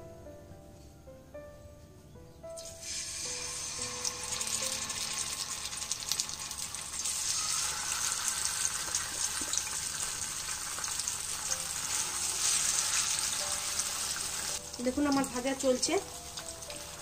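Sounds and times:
fish sizzling in hot oil: 0:02.6 - 0:17.0.

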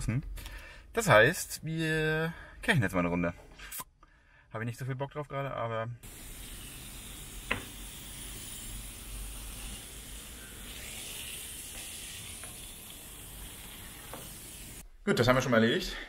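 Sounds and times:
pressure washer spraying water: 0:06.0 - 0:14.8.

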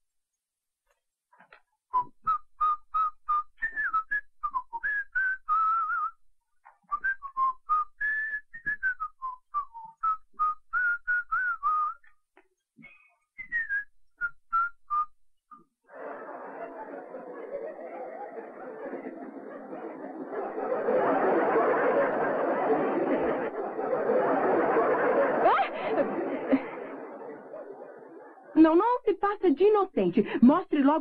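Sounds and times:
man whistling a tune: 0:01.9 - 0:06.2, 0:06.8 - 0:12.2, 0:12.8 - 0:15.7.

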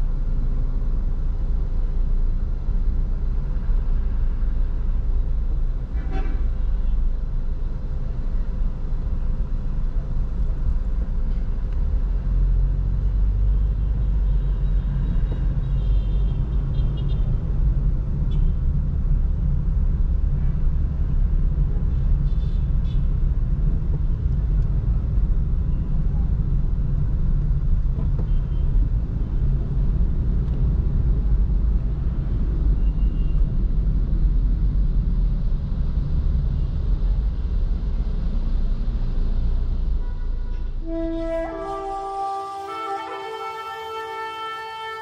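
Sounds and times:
car engine and road noise: 0:00.0 - 0:45.0
car horn toots: 0:40.0 - 0:45.0.

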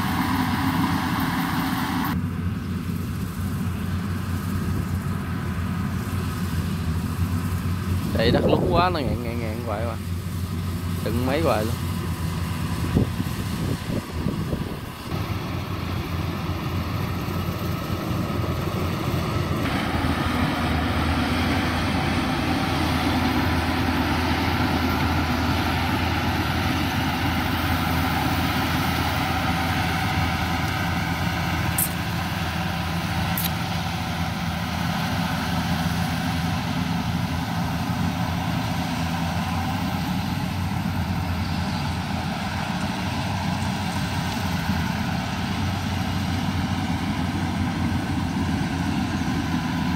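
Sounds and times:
combine harvester engine drone: 0:00.0 - 0:49.9.

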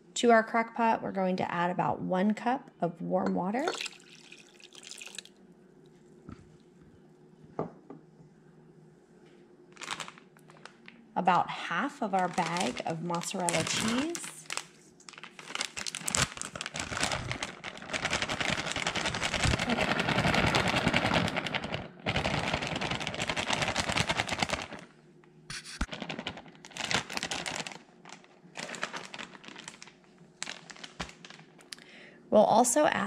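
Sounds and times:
plastic bag crinkling: 0:09.8 - 0:11.0, 0:11.9 - 0:24.9, 0:25.8 - 0:31.8.

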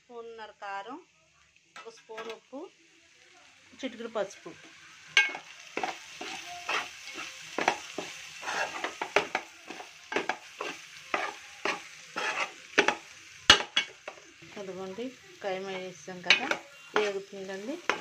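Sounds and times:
meat sizzling in oil: 0:00.2 - 0:18.0
metal spoon scraping pot: 0:05.2 - 0:14.2, 0:15.6 - 0:18.0.

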